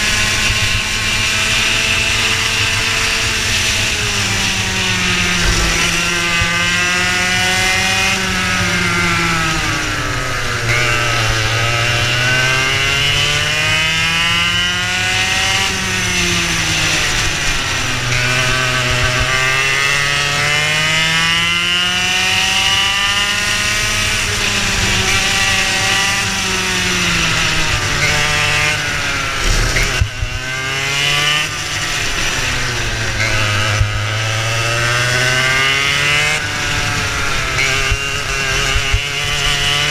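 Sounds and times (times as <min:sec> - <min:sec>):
kart engine accelerating: 0:00.0 - 0:39.9
sharp knocks: 0:05.2 - 0:07.6.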